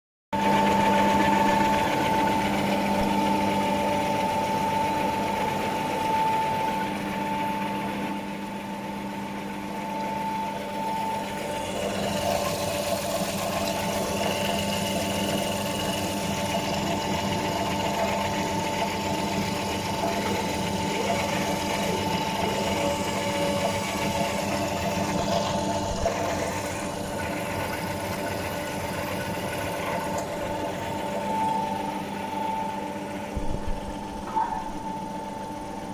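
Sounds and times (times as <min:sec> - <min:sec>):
extruder motor humming: 0:00.4 - 0:35.9
high whine: 0:30.1 - 0:35.9.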